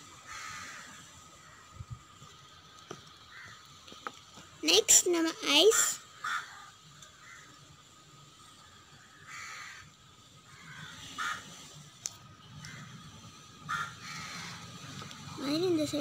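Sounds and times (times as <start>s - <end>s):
harsh animal calls: 5.5s - 7.5s, 10.5s - 11.9s, 12.6s - 15.4s.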